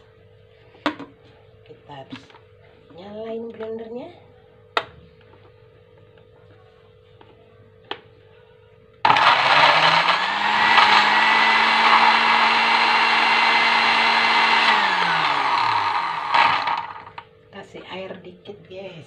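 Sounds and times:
blender grinding: 9.1 - 17.2.

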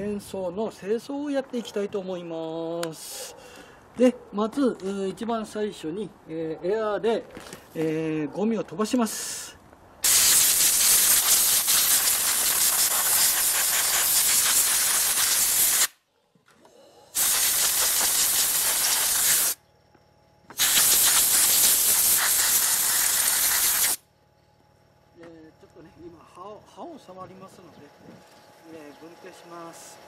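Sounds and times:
compressed air blow gun hissing: 10.0 - 16.0, 17.2 - 19.6, 20.5 - 24.0.

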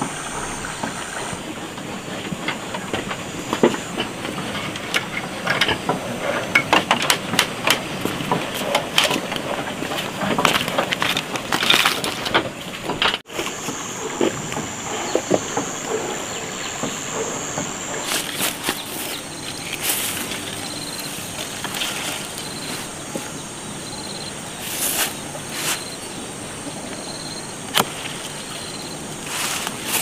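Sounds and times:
insects chirping: 0.0 - 30.0
leaves rustling: 7.2 - 30.0
footsteps in grass: 13.3 - 26.2, 27.9 - 30.0.

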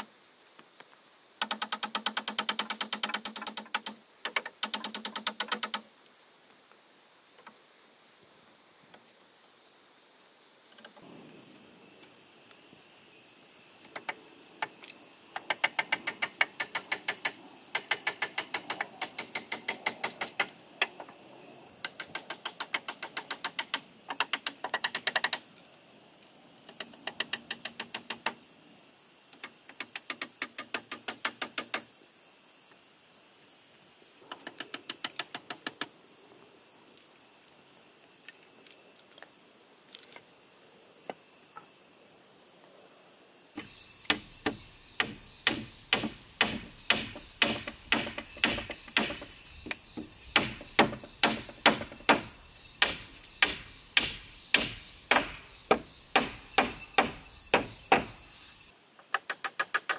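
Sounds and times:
hammer tapping a nail: 44.1 - 49.3.

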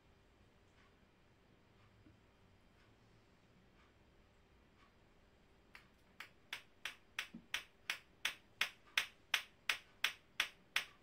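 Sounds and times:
plastic balls clacking together: 5.8 - 11.0.

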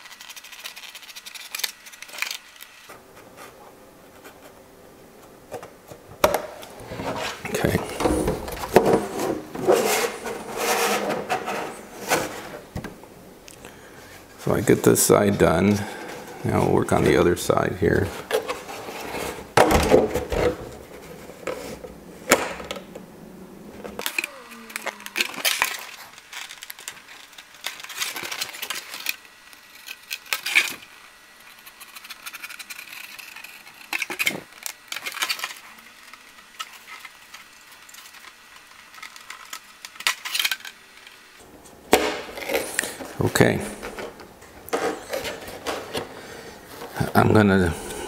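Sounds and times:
hobby knife scoring plastic: 0.0 - 2.8, 24.0 - 40.7
plastic shell crackling: 23.8 - 30.8.

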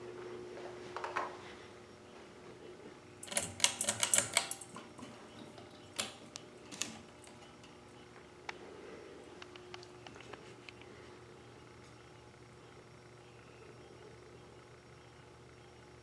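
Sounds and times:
ceiling fan motor hum: 0.0 - 16.0
pull chain clicks and rattle: 3.2 - 5.1.

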